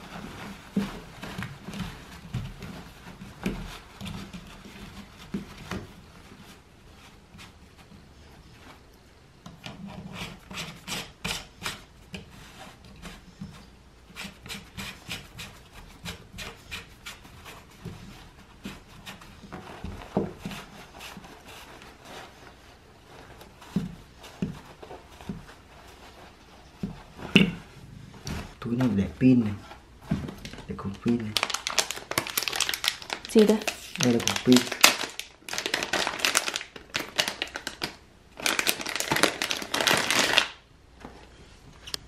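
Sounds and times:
fabric rustling: 0:00.0 - 0:10.5, 0:11.7 - 0:42.0.

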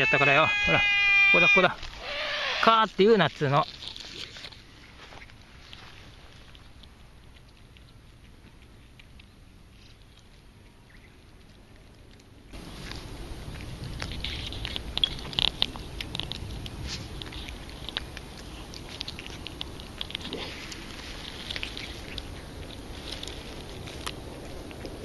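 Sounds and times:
cat chewing wet food: 0:06.3 - 0:25.0.

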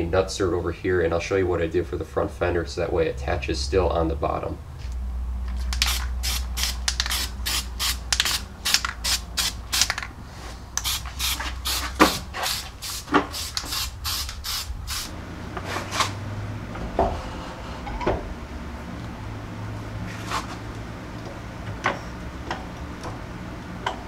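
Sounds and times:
aerosol spray hissing bursts: 0:05.7 - 0:09.9, 0:10.8 - 0:15.2.

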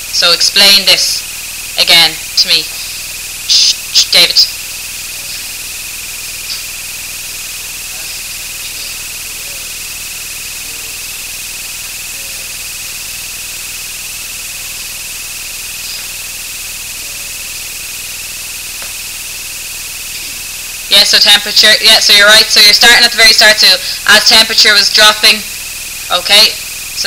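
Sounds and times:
constant hiss: 0:00.0 - 0:27.0
high-pitched whine: 0:00.0 - 0:27.0.

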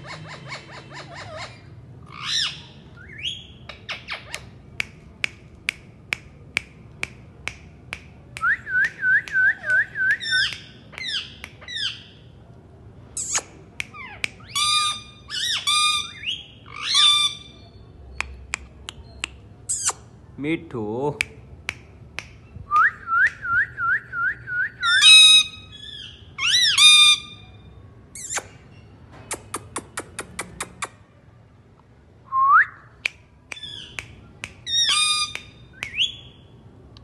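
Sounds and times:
parakeet harsh squawks: 0:00.0 - 0:04.4, 0:13.2 - 0:17.6, 0:34.7 - 0:35.4
parakeet clicks: 0:03.7 - 0:11.8, 0:29.3 - 0:31.0.

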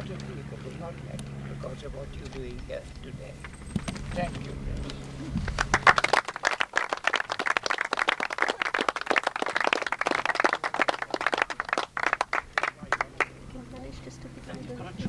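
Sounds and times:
small crowd applauding: 0:05.4 - 0:13.4.

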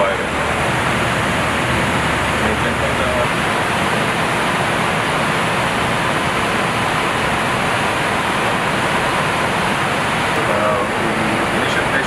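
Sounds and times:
rushing air noise: 0:00.0 - 0:12.0.

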